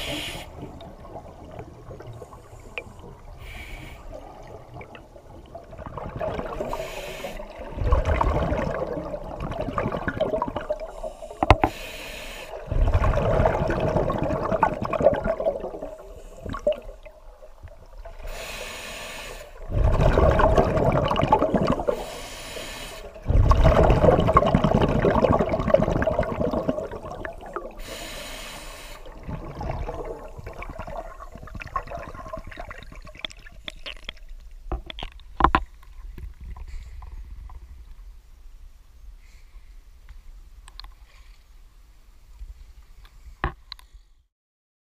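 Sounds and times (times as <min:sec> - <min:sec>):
regulator inhalation hiss: 0:00.0 - 0:00.6, 0:03.4 - 0:04.2, 0:06.7 - 0:07.5, 0:10.9 - 0:12.6, 0:18.2 - 0:19.6, 0:21.9 - 0:23.2, 0:27.8 - 0:29.2
bubbling exhaust underwater: 0:00.0 - 0:34.2.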